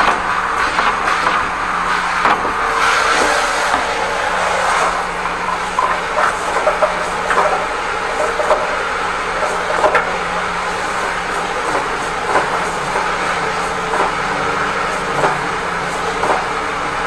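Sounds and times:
drain jetter running: 0.0s - 17.0s
hose knocking and clacking: 5.2s - 10.4s, 11.6s - 13.2s.

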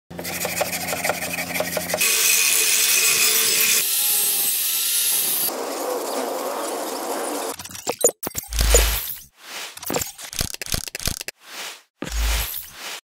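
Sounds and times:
scrubbing metal blade: 0.2s - 2.1s, 7.6s - 13.0s.

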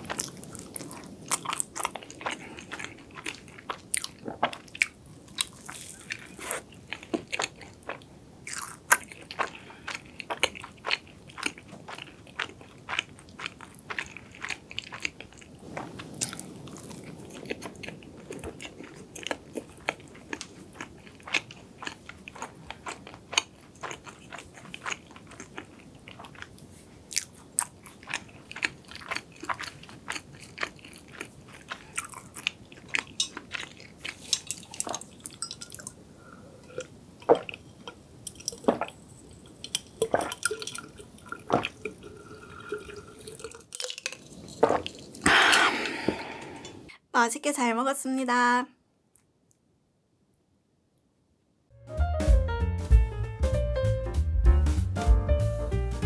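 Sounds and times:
chewing flaky pastry: 0.0s - 46.1s
person sipping a drink: 15.0s - 21.6s, 31.6s - 46.9s
wet mouth clicks: 44.0s - 46.9s.

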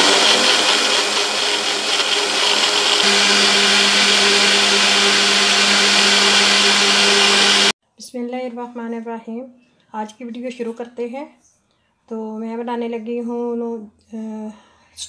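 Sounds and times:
cup blender running: 0.0s - 7.7s.

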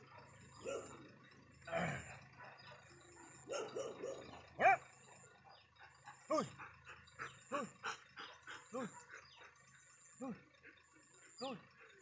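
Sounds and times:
dog barking: 0.0s - 1.0s, 2.4s - 6.5s, 8.8s - 9.4s.

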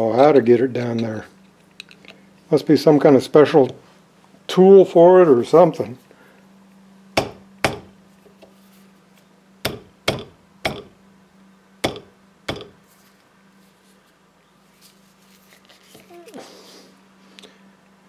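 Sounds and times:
screwdriver tapping metal ring: 9.7s - 11.0s, 11.8s - 12.8s.

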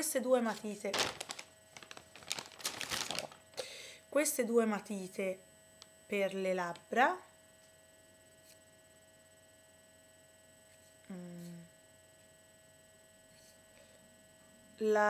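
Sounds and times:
electrical hum: 0.0s - 15.0s
woman murmuring: 11.1s - 11.7s.

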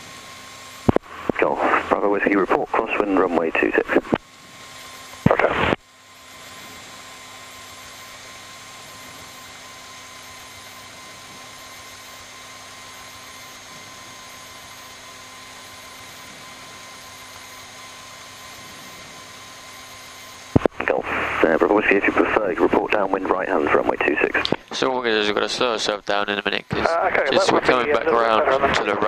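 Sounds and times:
faint aircraft engine humming: 0.0s - 29.0s
cockpit intercom hiss: 1.2s - 4.2s, 5.2s - 5.8s, 20.6s - 29.0s.

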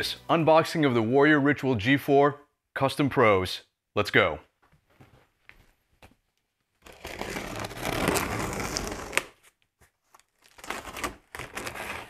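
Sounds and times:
blade slitting packing tape: 6.8s - 9.4s.

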